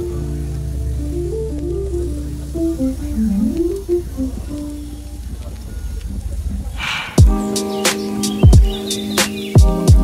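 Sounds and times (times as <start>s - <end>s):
short swish: 6.8s - 7.2s
deep kick drum: 7.2s - 7.5s, 8.4s - 8.8s, 9.6s - 10.0s.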